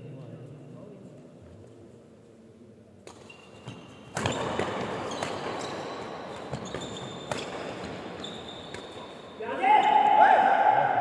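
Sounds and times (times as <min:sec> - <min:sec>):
racket striking shuttlecock: 0:03.0 - 0:08.0
shoes squeaking on court: 0:03.1 - 0:10.0.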